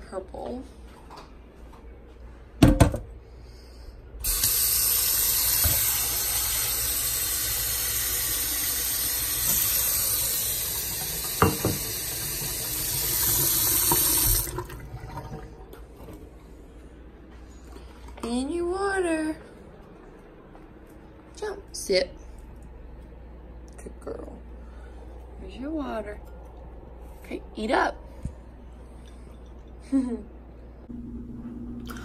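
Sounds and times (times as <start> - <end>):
faucet running into a sink: 4.2 - 15.8.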